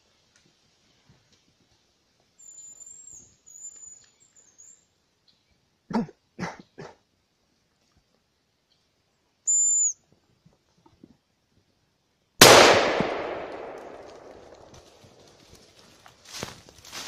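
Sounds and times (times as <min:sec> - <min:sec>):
high thin whistle: 0:09.5 - 0:10.0
loud gunshot with echo: 0:12.4 - 0:14.7.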